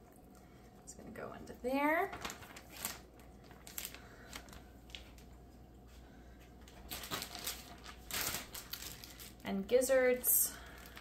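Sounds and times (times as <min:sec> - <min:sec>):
plastic bag crinkling: 0:01.8 - 0:05.4, 0:06.6 - 0:11.0.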